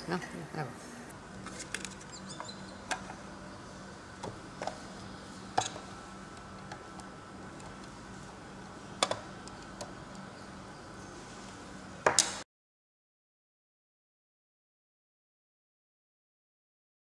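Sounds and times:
low steady hum: 0.0 - 12.4.

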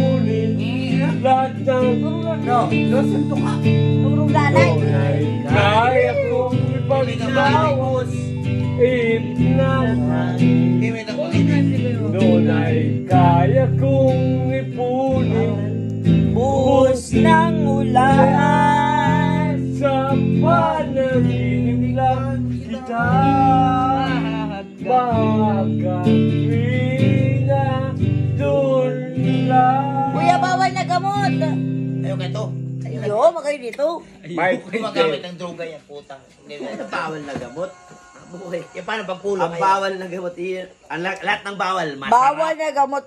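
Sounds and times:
man singing: 0.0 - 31.7
electric guitar chords: 0.0 - 33.2.

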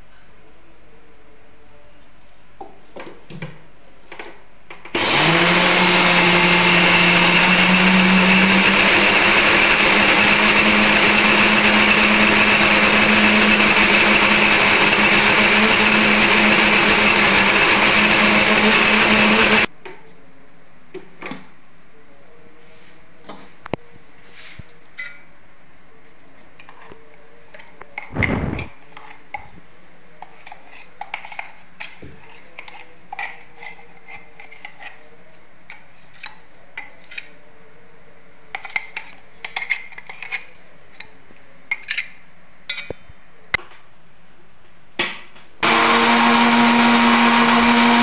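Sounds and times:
mixer grinder whining: 5.0 - 19.7, 45.6 - 48.0.

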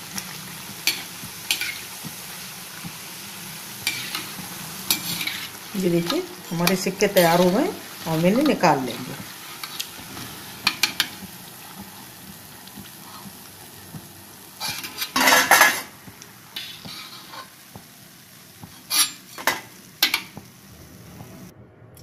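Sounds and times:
oil sizzling: 0.0 - 21.5
metal spoon scraping a pan: 0.8 - 2.0, 3.8 - 11.2, 14.6 - 15.9, 16.6 - 17.6, 18.8 - 20.3.

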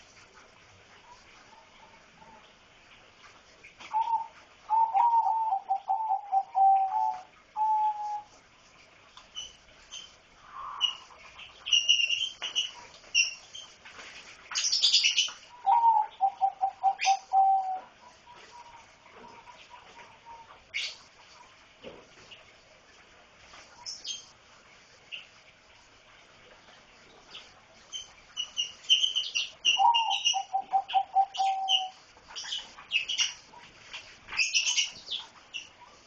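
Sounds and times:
high bird chirps: 28.0 - 33.4.

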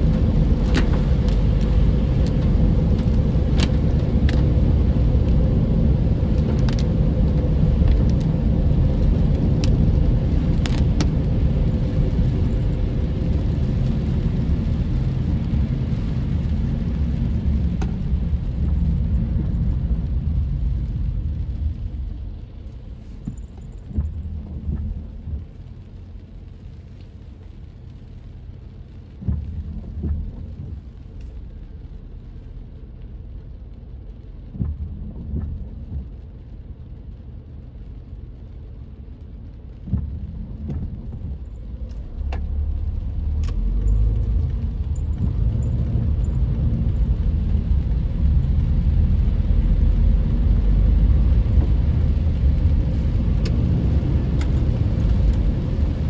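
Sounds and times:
low hum: 0.0 - 56.0
tyres and engine rumble: 0.0 - 56.0
short low thumps: 23.2 - 25.8, 29.0 - 31.1, 34.4 - 36.6, 39.7 - 48.6.

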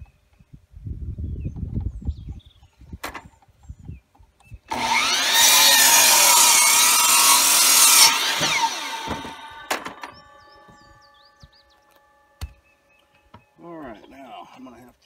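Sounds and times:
miter saw motor spinning: 4.7 - 11.3
saw blade cutting wood: 4.7 - 12.1.

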